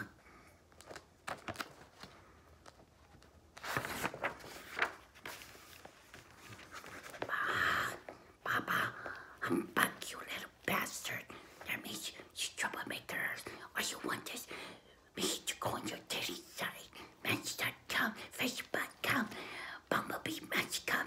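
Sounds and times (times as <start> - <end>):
person whispering: 0.0 - 0.2, 7.3 - 14.5, 15.1 - 21.0
rustling and handling noises: 0.3 - 8.4.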